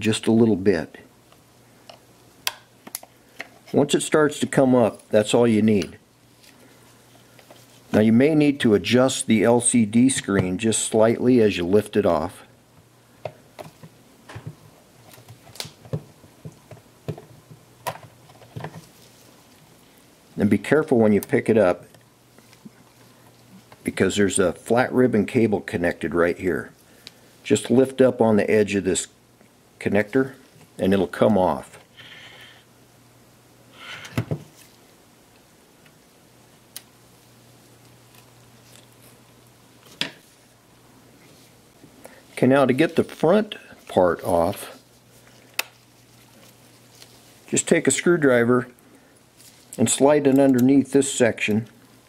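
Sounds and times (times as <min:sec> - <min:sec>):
faint room hum: 0:00.0 - 0:52.0
rustle of handling: 0:06.2 - 0:08.1, 0:18.1 - 0:20.2, 0:22.3 - 0:24.0, 0:37.2 - 0:50.7.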